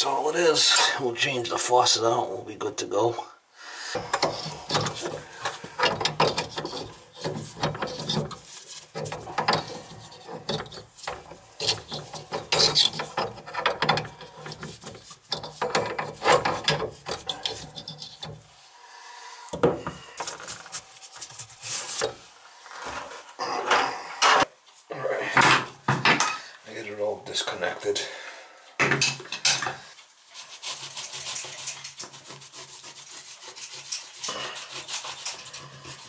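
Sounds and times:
hands scraping metal fittings: 3.9 - 18.6, 19.5 - 22.3, 30.3 - 36.0.

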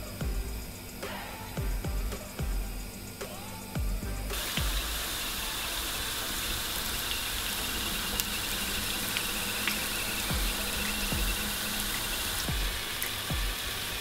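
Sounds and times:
eggplant frying in hot oil: 4.3 - 14.0.

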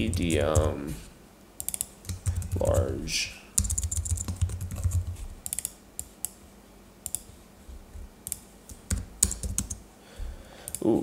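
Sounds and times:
computer keyboard typing: 0.0 - 0.8, 1.6 - 6.1, 7.0 - 7.4, 8.3 - 9.8.

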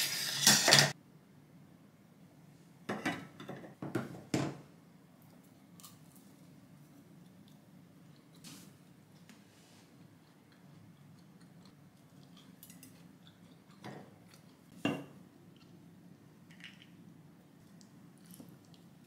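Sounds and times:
faint room hum: 0.0 - 19.0.

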